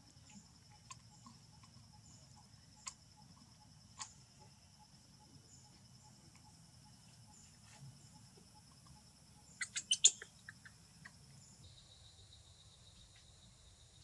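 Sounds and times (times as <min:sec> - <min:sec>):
high insect drone: 0:00.0 - 0:14.0
sharp high chirps: 0:09.5 - 0:10.7.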